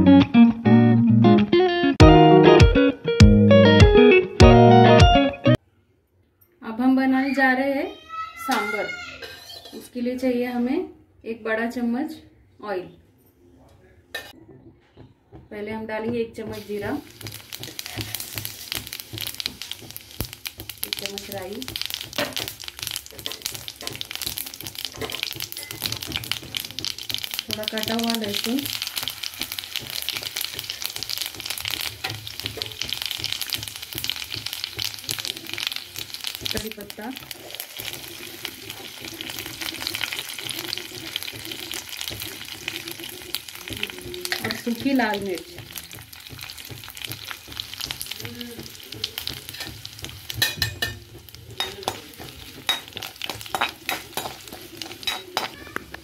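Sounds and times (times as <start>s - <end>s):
metal spoon scraping pan: 9.2s - 9.9s, 17.6s - 18.8s, 49.2s - 56.0s
spices sizzling in hot oil: 16.4s - 56.0s.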